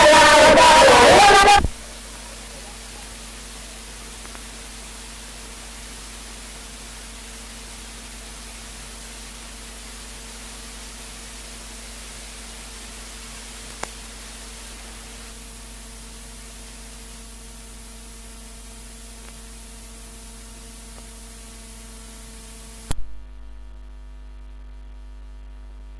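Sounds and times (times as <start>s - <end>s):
recording hiss: 0.0s - 23.6s
electrical hum: 0.0s - 25.9s.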